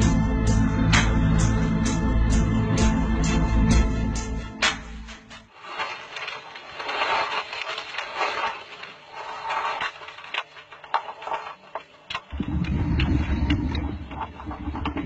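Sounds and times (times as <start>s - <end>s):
rumble of exhaled bubbles: 12.3s - 15.0s.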